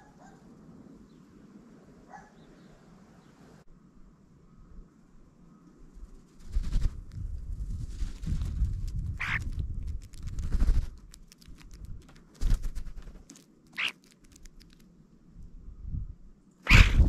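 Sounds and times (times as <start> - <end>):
wings fluttering: 5.9 - 15.0, 16.6 - 17.0
pecking clicks: 9.2 - 14.9
bird call: 13.8 - 14.0.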